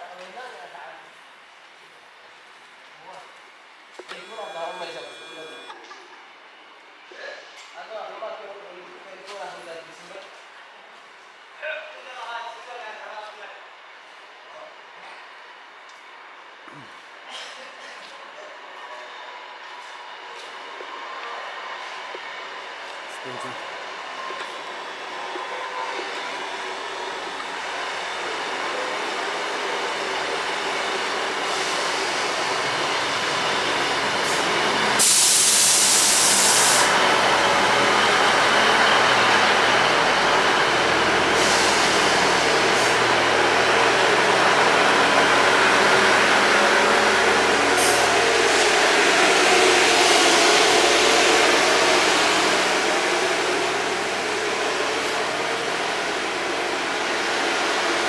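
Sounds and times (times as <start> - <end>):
diesel train engines running: 3.6 - 7.1, 18.2 - 58.0
loud hiss of air: 28.9 - 58.0.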